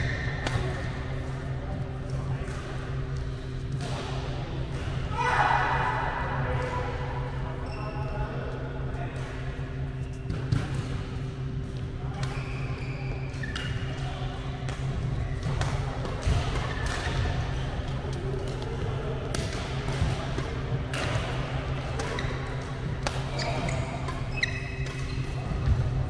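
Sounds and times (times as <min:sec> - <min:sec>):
rackets hitting shuttlecock: 0:00.0 - 0:01.0, 0:14.6 - 0:25.9
steady low hum: 0:00.0 - 0:26.0.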